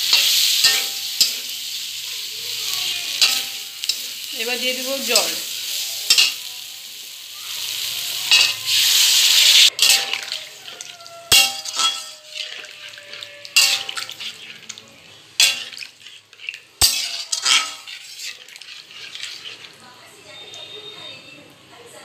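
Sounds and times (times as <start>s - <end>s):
metal spatula clinking on pan: 0.0s - 1.6s, 3.2s - 4.3s, 6.0s - 6.5s, 8.3s - 8.6s, 9.7s - 14.8s, 15.4s - 19.8s
water sizzling in hot pan: 0.0s - 21.1s.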